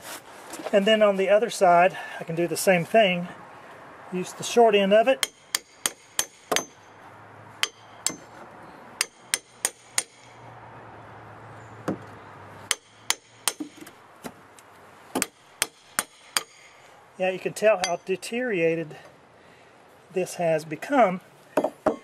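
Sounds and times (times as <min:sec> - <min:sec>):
hammer striking steel pry bar: 0:05.2 - 0:07.0, 0:07.6 - 0:08.3, 0:09.0 - 0:10.4, 0:12.7 - 0:13.9, 0:15.2 - 0:16.8, 0:17.8 - 0:18.1.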